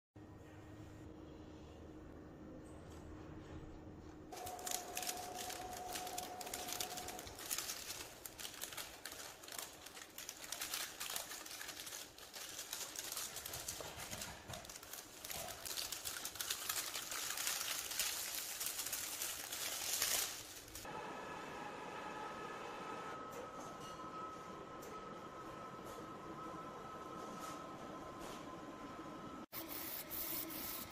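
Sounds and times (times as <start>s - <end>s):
metallic film crinkling: 4.3s - 20.9s
plastic bag crinkling: 4.3s - 20.9s.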